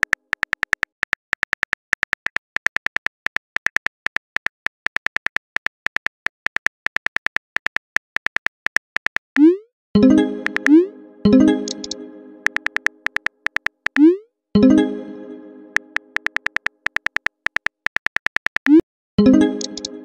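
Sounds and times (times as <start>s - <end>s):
phone keyboard clicks: 0.0s - 9.2s, 11.8s - 14.0s, 15.8s - 18.8s.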